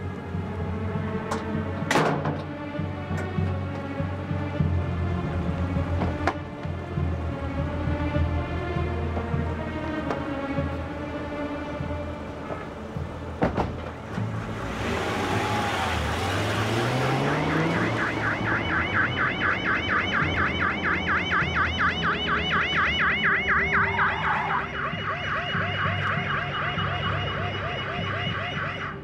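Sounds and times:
car engine revving: 0.0s - 27.6s
police siren warbling: 15.0s - 29.0s.

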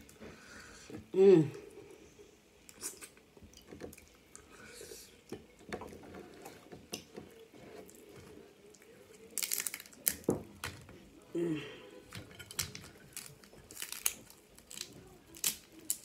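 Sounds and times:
crab shell cracking: 9.2s - 10.8s, 12.4s - 16.0s.

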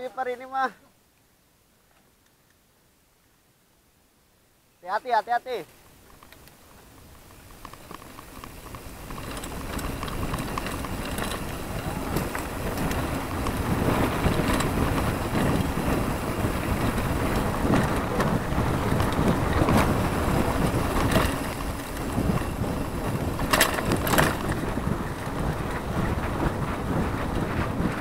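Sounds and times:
bike rattles and knocks: 6.0s - 28.0s
tyres rumbling on dirt: 6.0s - 28.0s
wind buffeting microphone: 6.8s - 28.0s
sharp clatters: 7.2s - 26.3s.

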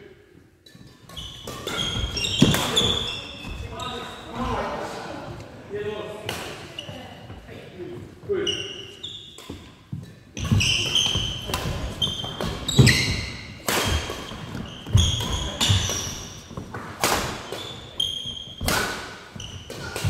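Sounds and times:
rackets striking shuttlecock: 0.6s - 3.1s, 9.4s - 20.0s
sneakers squeaking: 0.6s - 5.0s, 6.3s - 20.0s.

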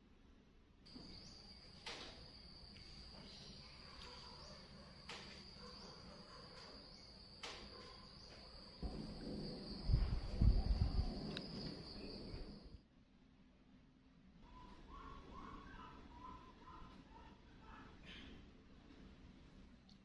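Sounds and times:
insects chirring: 0.9s - 12.8s
low rumbling on microphone: 8.8s - 12.8s.

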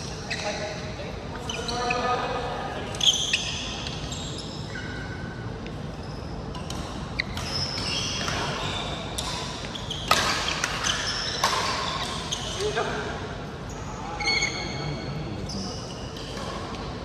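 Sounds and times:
sneakers squeaking on court floor: 0.0s - 0.8s, 1.4s - 2.3s, 2.9s - 14.8s
racket hitting shuttlecock: 6.6s - 12.4s.

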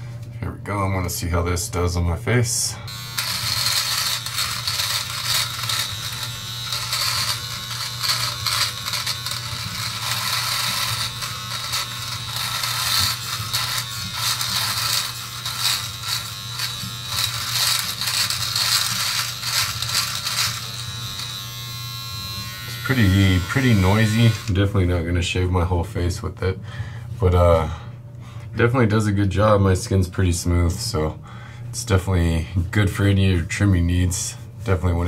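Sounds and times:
electric trimmer buzzing: 2.9s - 24.6s
foil cutting stubble rasp: 3.2s - 21.5s.

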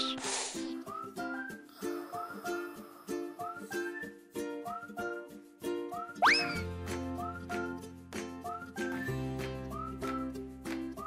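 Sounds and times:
bouncy plucked string tune: 2.6s - 11.0s.

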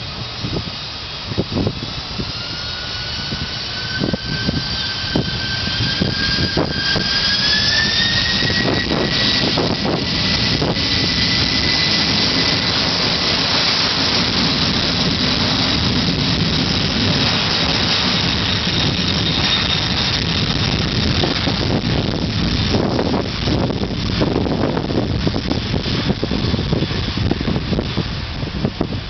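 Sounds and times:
jet engines roaring with whine: 0.0s - 29.0s.

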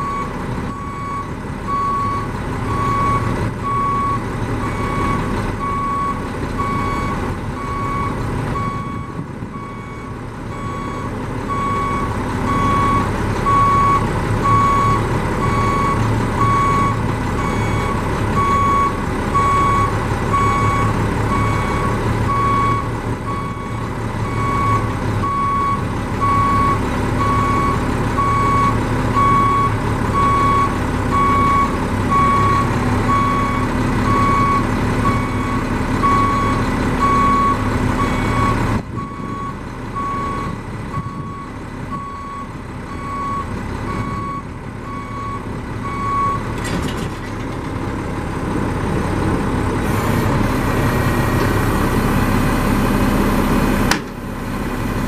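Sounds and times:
truck diesel engine running: 0.0s - 55.0s.

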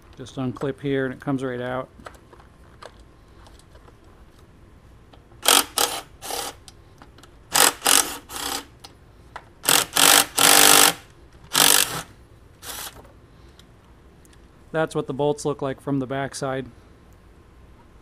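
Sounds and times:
socket ratchet clicking: 5.4s - 6.8s, 7.5s - 8.9s, 9.6s - 13.0s.

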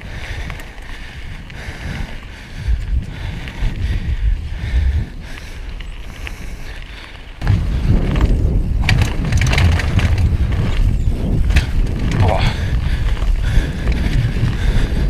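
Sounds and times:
bike clattering and rattling: 0.0s - 15.0s
wind rumble on microphone: 0.0s - 15.0s
tyres rolling on gravel: 5.2s - 15.0s.

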